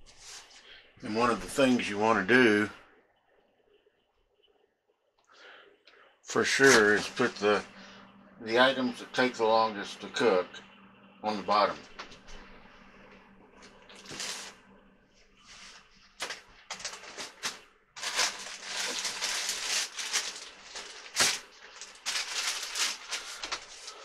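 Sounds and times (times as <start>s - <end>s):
vegetables rustling and clattering: 13.7s - 14.6s, 15.4s - 24.0s.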